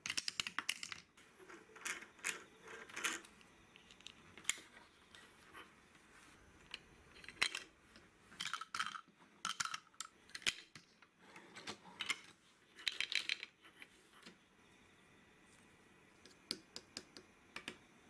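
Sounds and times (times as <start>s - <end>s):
plastic toy pieces clattering: 0.0s - 1.1s, 6.7s - 7.7s, 8.4s - 10.8s, 12.8s - 13.6s.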